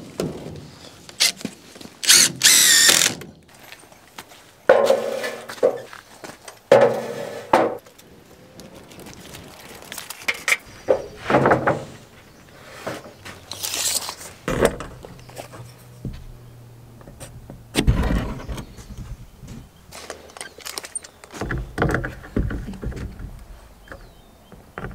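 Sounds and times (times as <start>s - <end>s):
wooden knocks and clunks: 4.7s - 5.9s, 6.7s - 7.8s, 10.8s - 12.0s, 14.4s - 19.6s, 20.9s - 24.9s.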